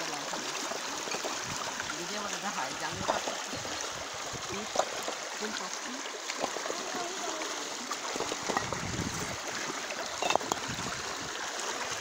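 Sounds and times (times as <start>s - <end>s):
floodwater rushing and splashing: 0.0s - 12.0s.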